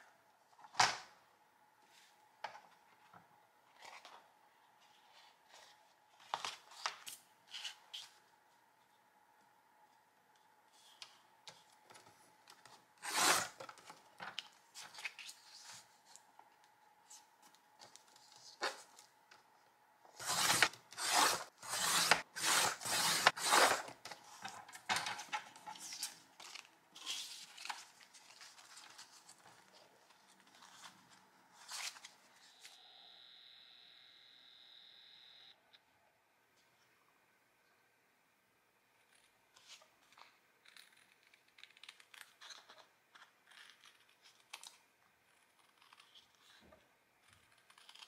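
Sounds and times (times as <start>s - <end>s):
paper trimmer rasping cut: 20.2s - 23.9s
paper rustling: 20.2s - 32.4s.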